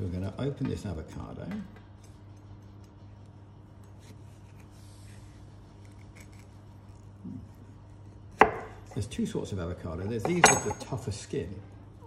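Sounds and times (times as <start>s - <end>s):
knife scraping avocado skin: 2.2s - 8.4s.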